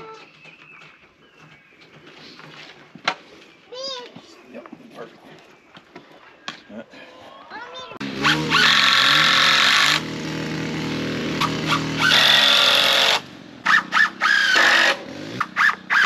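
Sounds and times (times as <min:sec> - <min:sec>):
power tool running: 0:08.0 - 0:16.0.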